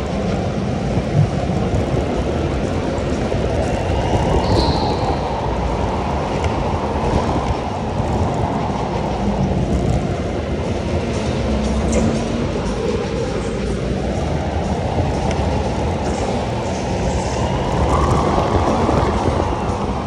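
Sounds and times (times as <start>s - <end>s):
brief high squeak: 4.4s - 5.2s.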